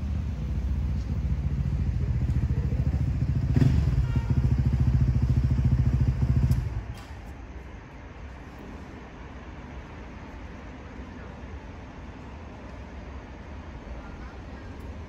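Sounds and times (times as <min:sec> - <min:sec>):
engine pulsing: 0:00.0 - 0:07.2.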